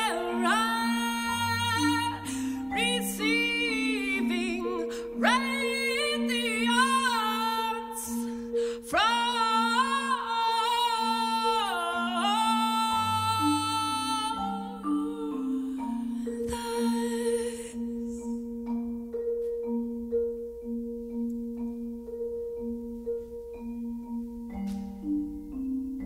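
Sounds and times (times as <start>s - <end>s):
woman singing with vibrato: 0.0s - 18.5s
held accompanying notes: 0.0s - 26.0s.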